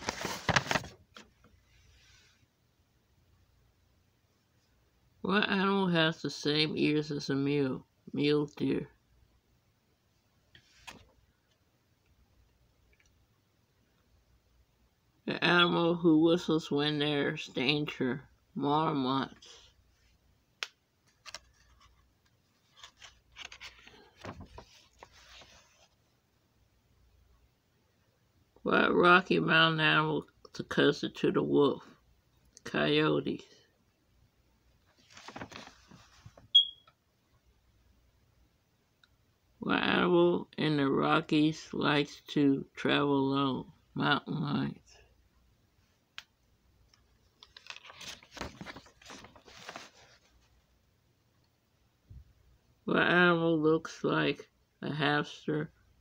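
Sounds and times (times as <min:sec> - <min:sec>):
paper page rustling: 0:00.0 - 0:01.5, 0:10.6 - 0:11.2, 0:21.0 - 0:26.0, 0:34.9 - 0:36.5, 0:47.4 - 0:50.6.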